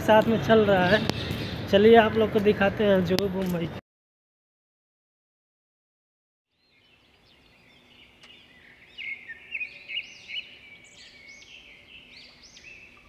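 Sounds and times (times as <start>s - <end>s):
birds chirping in chorus: 0.3s - 1.9s, 6.5s - 13.0s.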